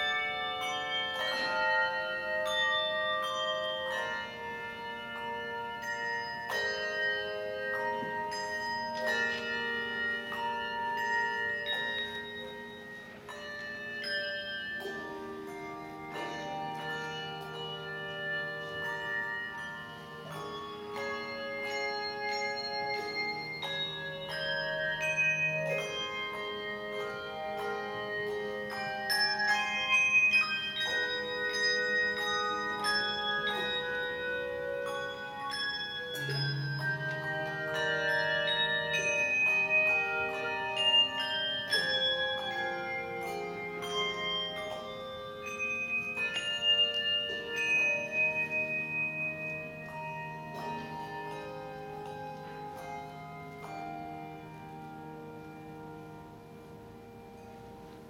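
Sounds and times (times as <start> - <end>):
handbell ensemble playing jazz ballad: 0.0 - 58.0
low bass bells: 0.0 - 58.0.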